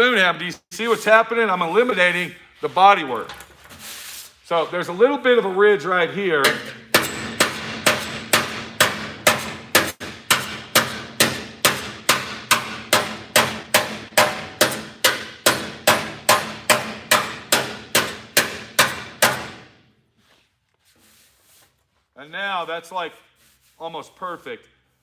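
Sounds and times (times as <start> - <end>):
hammer striking sheet metal: 6.4 - 19.8.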